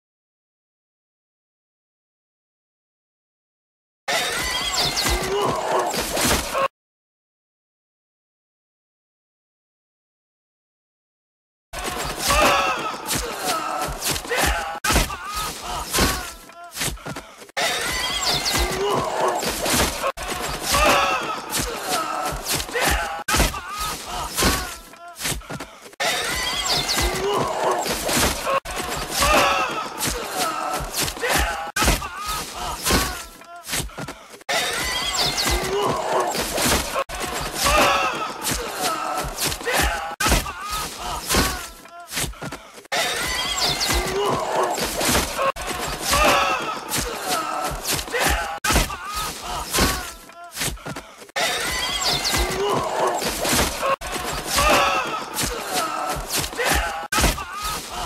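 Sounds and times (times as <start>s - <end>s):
men screaming: 11.9s - 34.8s, 35.4s - 58.0s
men crying out in pain: 12.0s - 18.0s, 18.6s - 34.8s, 35.5s - 58.0s
men shouting: 12.1s - 17.7s, 18.6s - 33.6s, 35.5s - 58.0s.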